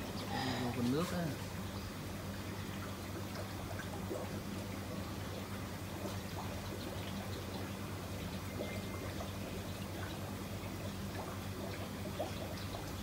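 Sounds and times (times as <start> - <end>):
low mechanical hum: 0.0 - 13.0
water trickling and splashing: 0.0 - 13.0.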